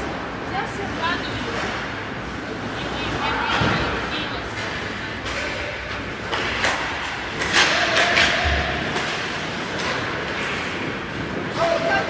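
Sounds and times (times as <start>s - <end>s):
arena noise: 0.0s - 12.0s
hockey sticks and puck knocking: 4.6s - 11.6s.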